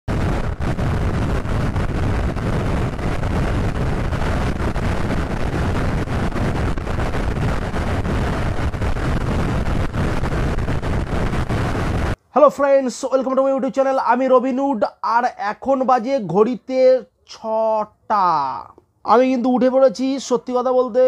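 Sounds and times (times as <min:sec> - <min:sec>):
wind buffeting microphone: 0:00.1 - 0:12.2.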